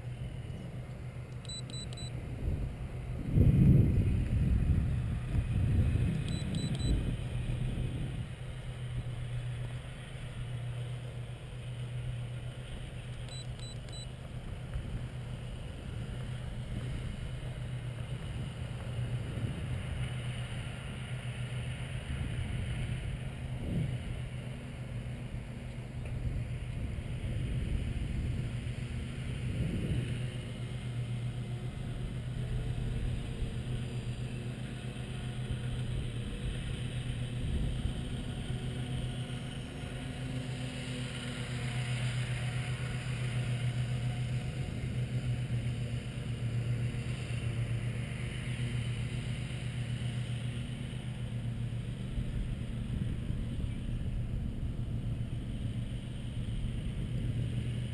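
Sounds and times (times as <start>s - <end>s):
model plane motors droning: 0.0s - 57.9s
quick high beeps: 1.4s - 2.2s, 6.2s - 7.0s, 13.3s - 14.1s
wind buffeting microphone: 2.2s - 9.2s, 26.1s - 30.4s.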